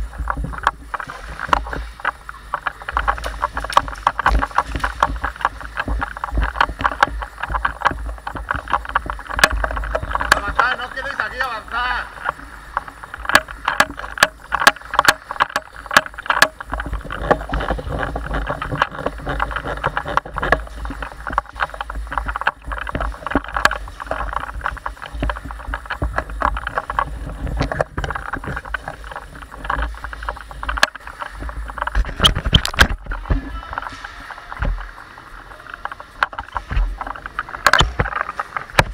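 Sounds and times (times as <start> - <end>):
rustling of gear: 12.1 - 38.9.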